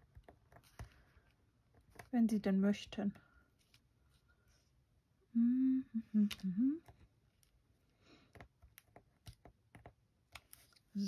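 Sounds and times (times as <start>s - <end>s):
woman humming: 5.3s - 7.0s.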